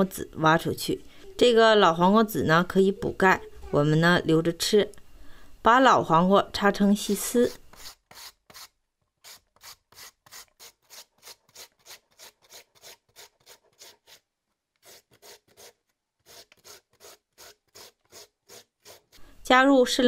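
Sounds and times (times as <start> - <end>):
cucumber rasping on metal grater: 7.7 - 14.2, 14.8 - 19.2.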